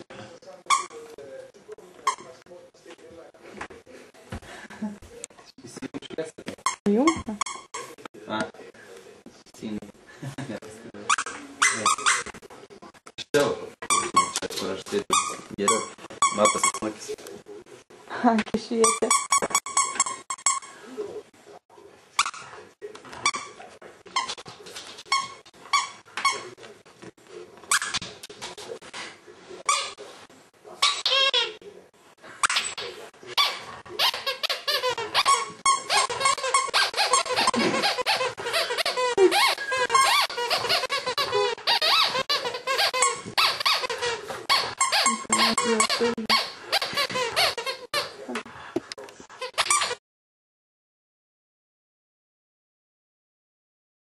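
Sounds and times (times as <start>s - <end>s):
squeaky plush toy squeaks: 0.7s - 1.0s, 11.1s - 12.4s, 15.1s - 16.8s, 18.8s - 20.7s, 30.8s - 31.6s, 33.4s - 48.2s, 49.4s - 50.0s.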